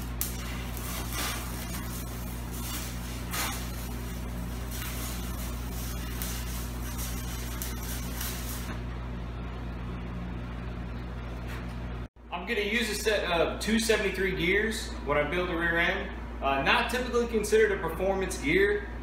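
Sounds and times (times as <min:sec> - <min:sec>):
arc welding crackling hiss: 0:00.0 - 0:08.8
steady low hum: 0:00.0 - 0:19.0.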